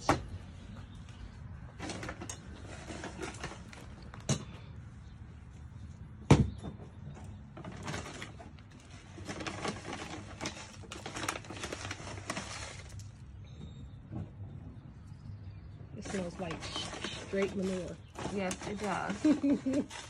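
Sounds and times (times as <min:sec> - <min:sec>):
plastic bag crinkling: 0:07.6 - 0:13.3.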